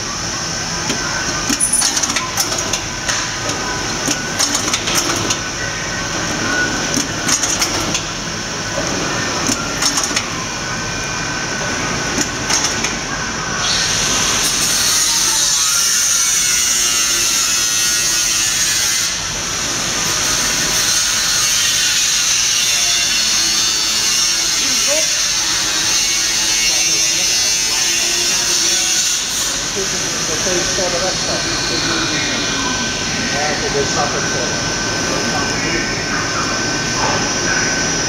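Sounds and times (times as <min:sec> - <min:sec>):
machinery clicking and clacking: 0:00.8 - 0:05.5, 0:06.9 - 0:08.2, 0:08.8 - 0:10.4, 0:12.1 - 0:13.0.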